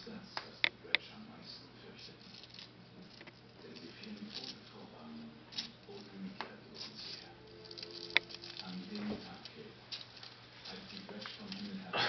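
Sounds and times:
kittens' paws pattering: 1.9 - 11.9.

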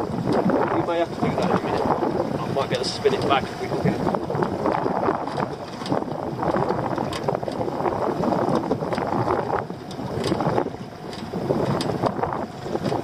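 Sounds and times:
water lapping against boat hull: 0.0 - 13.0
wind on microphone: 0.0 - 13.0.

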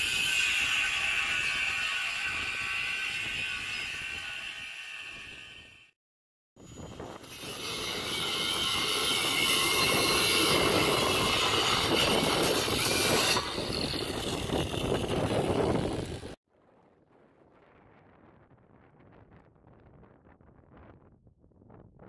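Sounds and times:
angle grinder cutting metal: 0.0 - 5.9, 6.7 - 16.4
faint wind: 0.0 - 5.9, 6.6 - 22.0.

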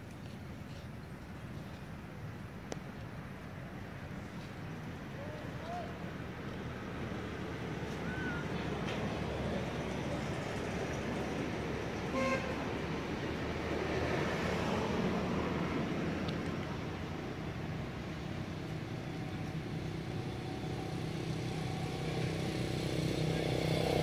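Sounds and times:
road traffic: 0.0 - 24.0
car horn toot: 12.1 - 12.5.

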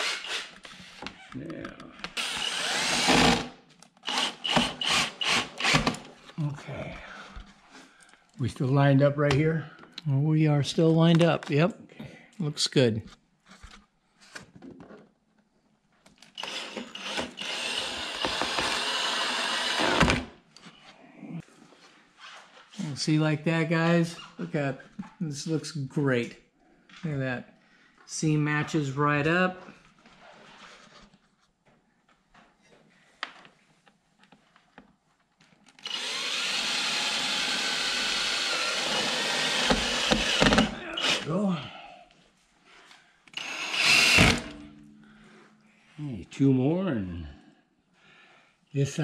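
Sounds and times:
power drill driving screw: 0.0 - 1.0, 2.2 - 6.1, 16.2 - 20.4, 35.8 - 41.3, 43.3 - 44.6.

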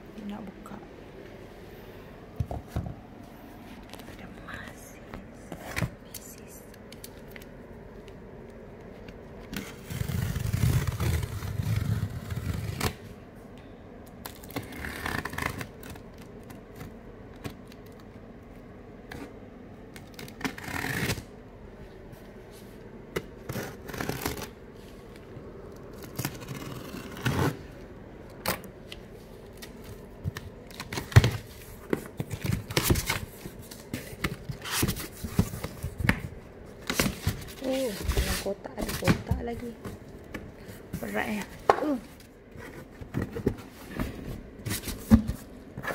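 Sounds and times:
scissors scraping packing tape: 14.3 - 16.0, 20.0 - 21.3, 23.5 - 24.6.

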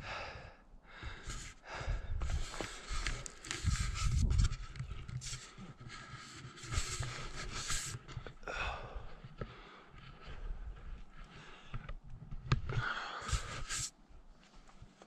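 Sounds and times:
person breathing hard: 0.0 - 3.5, 8.2 - 11.9, 12.6 - 13.9
wind buffeting microphone: 1.7 - 5.1.

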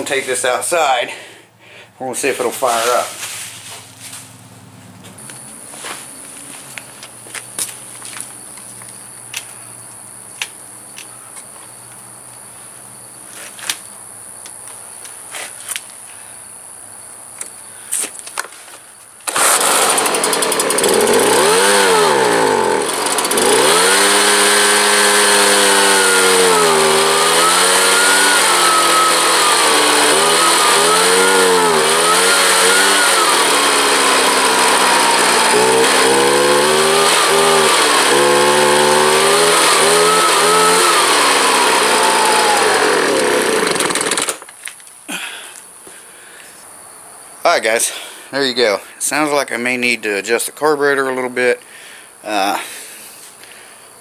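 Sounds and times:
leaf blower engine running: 19.2 - 45.5.

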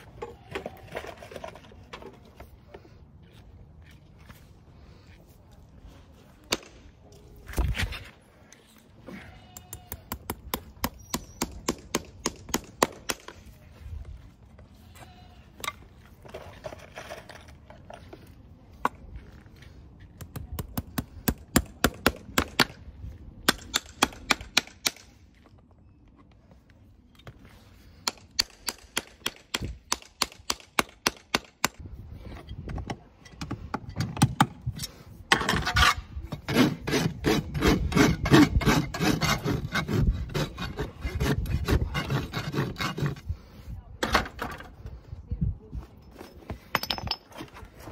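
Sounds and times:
rasp filing hoof: 35.4 - 43.5.

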